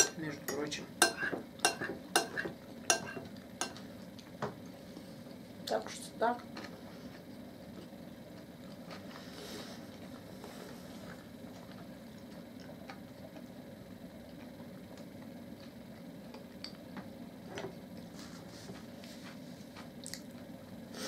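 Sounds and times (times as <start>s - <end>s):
cutlery clicking against glass dishes: 0.0s - 3.8s
steady low hum: 0.0s - 21.0s.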